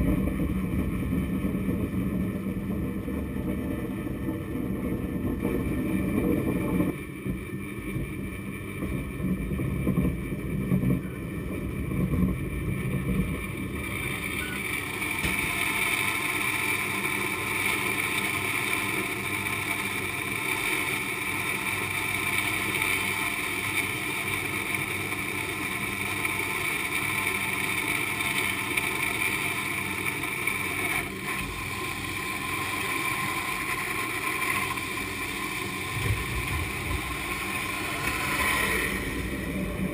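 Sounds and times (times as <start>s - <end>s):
cable car machinery rumbling and whining: 0.0s - 39.9s.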